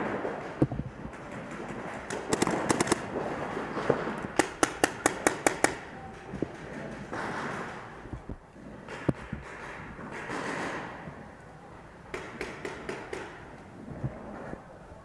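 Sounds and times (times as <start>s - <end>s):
paintball markers firing: 1.1s - 7.9s.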